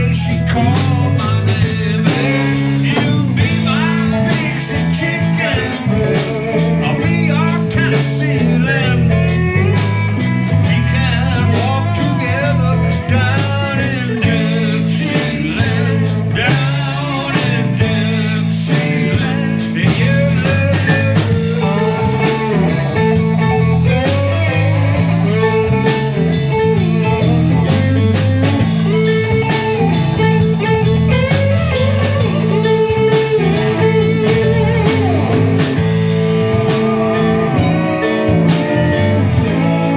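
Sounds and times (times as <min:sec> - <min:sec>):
live band playing blues-rock: 0:00.0 - 0:39.9.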